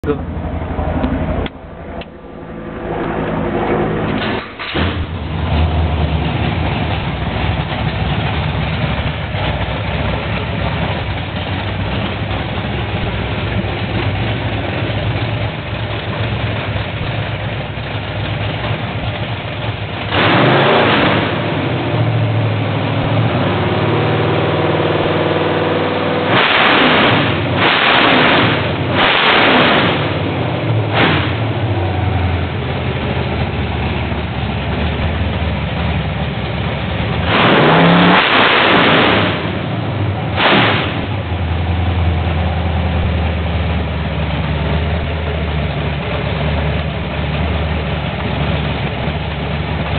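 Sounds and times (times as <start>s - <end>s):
v-eight engine running and revving: 2.6s - 49.9s
engine cranking: 4.0s - 21.4s.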